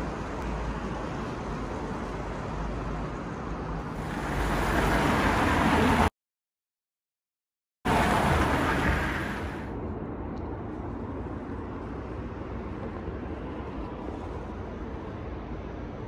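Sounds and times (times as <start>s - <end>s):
street traffic hum: 0.0s - 6.1s, 7.9s - 16.0s
vehicle passing close by: 4.0s - 6.1s, 7.9s - 9.7s.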